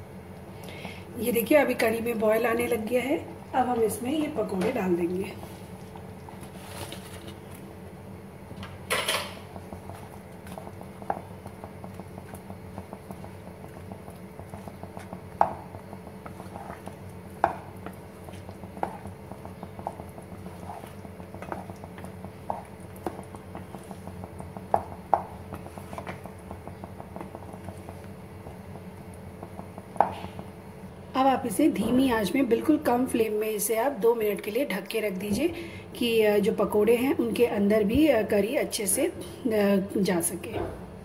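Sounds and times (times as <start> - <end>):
spatula knocking against pan: 24.7 - 25.4.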